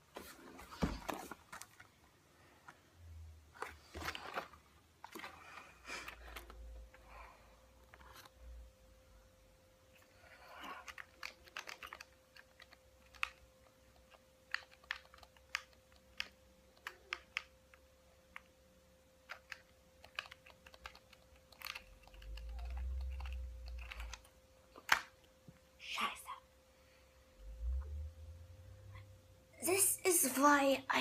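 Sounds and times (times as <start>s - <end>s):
faint steady hum: 0.0s - 31.0s
game controller buttons clicking: 10.8s - 13.4s, 14.1s - 17.5s, 19.3s - 24.3s.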